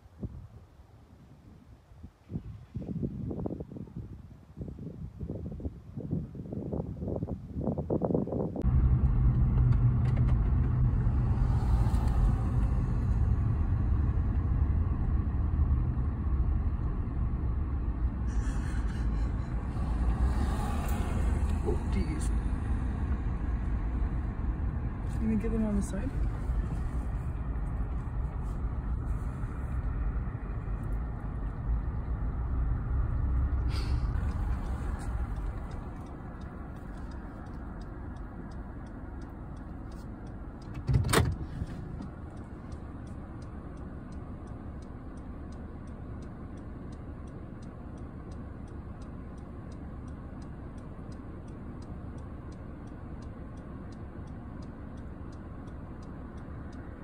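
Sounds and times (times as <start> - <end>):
car rumble inside cabin: 7.9 - 57.0
faint regular ticking: 21.4 - 40.8, 41.4 - 57.0.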